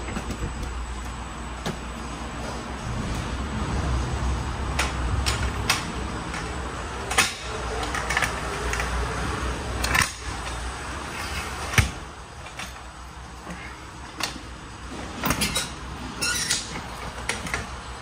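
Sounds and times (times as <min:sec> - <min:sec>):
low steady rumble: 0:00.0 - 0:09.8.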